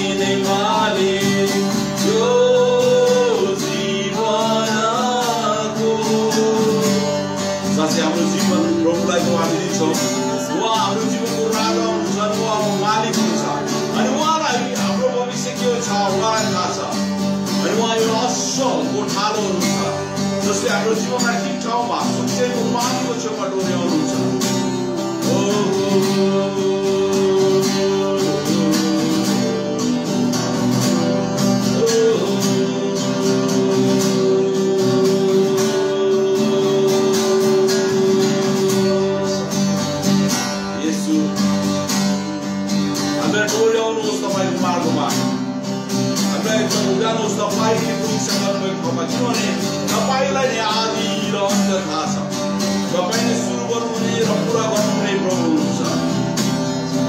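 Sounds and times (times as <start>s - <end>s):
acoustic guitar strumming: 0.0s - 57.0s
man singing: 0.0s - 57.0s.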